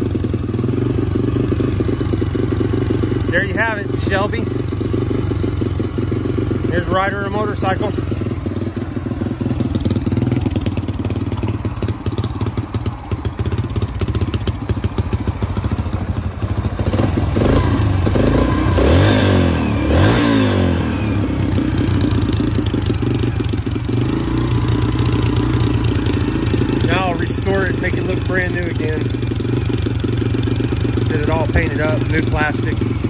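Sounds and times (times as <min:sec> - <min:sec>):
motorcycle engine idling: 0:00.0 - 0:33.0.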